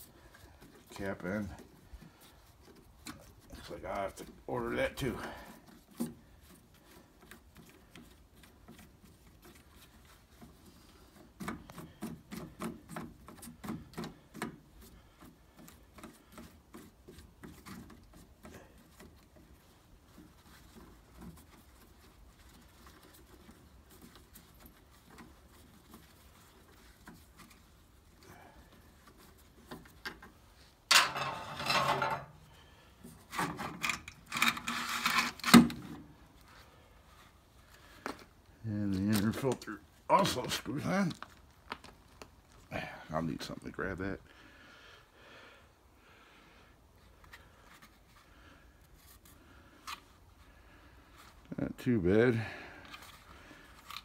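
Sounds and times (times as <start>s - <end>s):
hands rubbing plastic housing: 0.0s - 42.7s.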